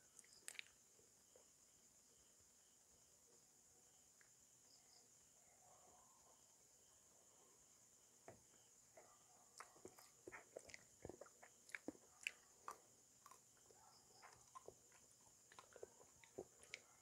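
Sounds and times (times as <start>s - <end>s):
soft chewing: 0.0s - 1.5s, 8.2s - 17.0s.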